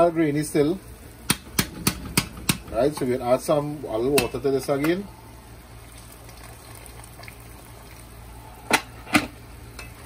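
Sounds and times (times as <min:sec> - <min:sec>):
pot bubbling at a simmer: 0:00.8 - 0:10.0
sharp knocks: 0:01.3 - 0:02.8.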